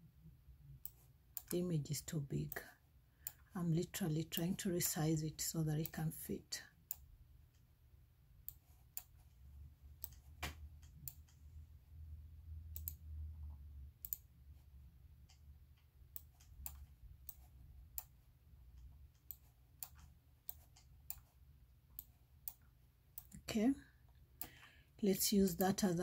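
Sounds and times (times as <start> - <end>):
low steady hum: 0.0 - 26.0
computer mouse clicking: 0.8 - 1.6, 8.4 - 9.3, 9.9 - 11.5, 12.7 - 14.3, 15.2 - 23.4.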